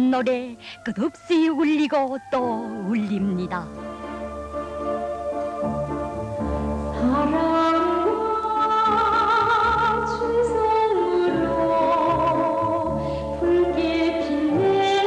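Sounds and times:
orchestral music: 1.6s - 9.2s.

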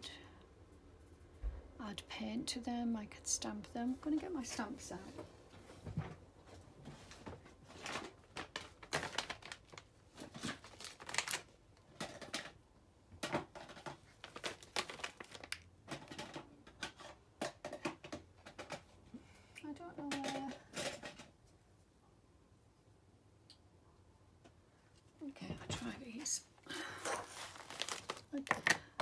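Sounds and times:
craft supplies clicking and rustling: 7.7s - 12.6s, 13.2s - 18.9s, 20.1s - 21.4s, 27.0s - 29.0s.

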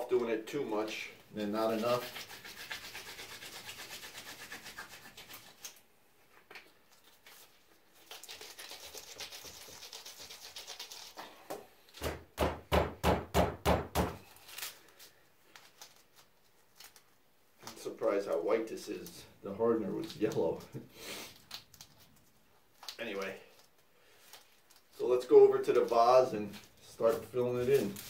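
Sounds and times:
hands rubbing putty: 1.8s - 5.8s.

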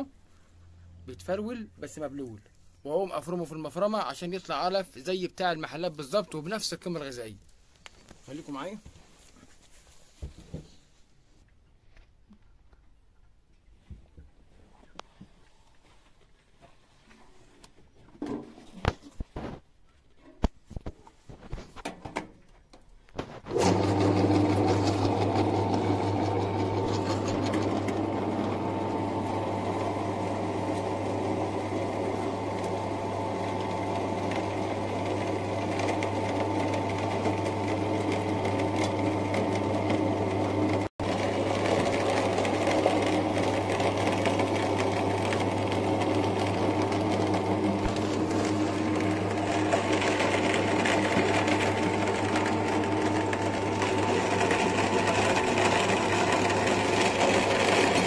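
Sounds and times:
electric meat grinder running: 23.5s - 58.0s.

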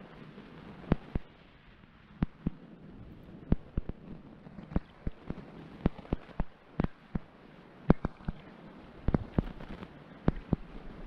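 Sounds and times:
muffled water knocks and splashes: 7.9s - 10.8s.

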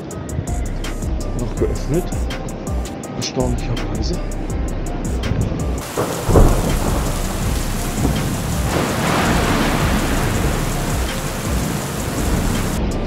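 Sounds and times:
storm gale rushing: 5.8s - 13.0s.

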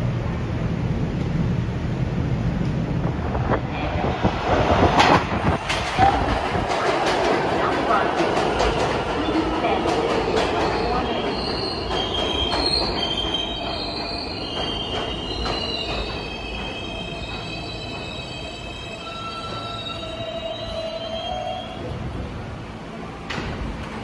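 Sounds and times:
train rumble: 0.0s - 24.0s
train brakes squealing: 10.7s - 21.9s.

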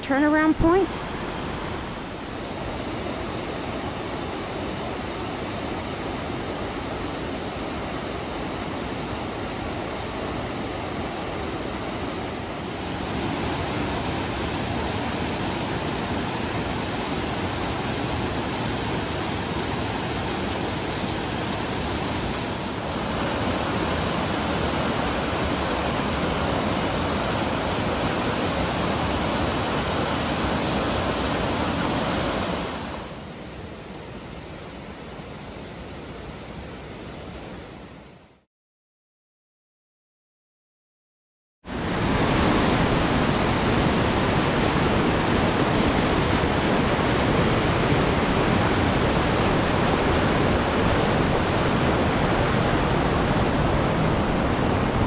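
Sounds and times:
creek rushing over rocks: 1.2s - 33.2s.

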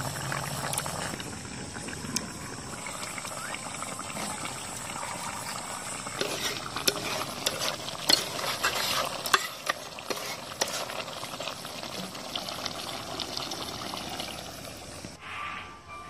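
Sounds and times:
curry bubbling and sizzling: 0.0s - 15.2s
metal ladle stirring: 5.4s - 11.2s.

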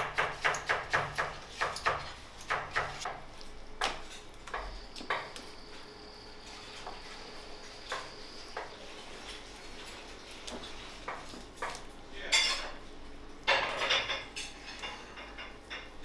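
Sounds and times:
metal kitchenware clattering: 9.2s - 12.8s, 13.4s - 16.0s.

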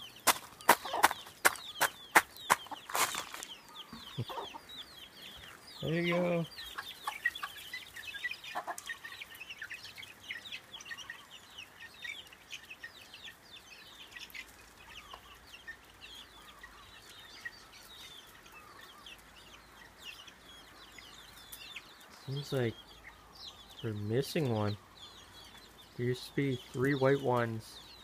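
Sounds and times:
hen clucking: 0.0s - 13.4s
chicks peeping: 0.0s - 28.0s.

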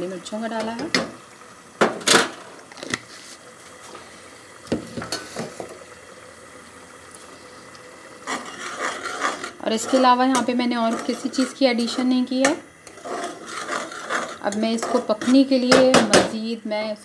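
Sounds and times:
sauce simmering and bubbling: 2.4s - 14.4s.

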